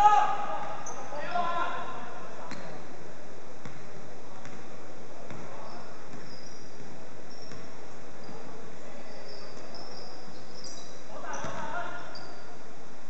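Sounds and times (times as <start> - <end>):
basketball bouncing on wooden floor: 3.6 - 4.6, 5.3 - 7.7
shoe squeaks: 5.5 - 12.6.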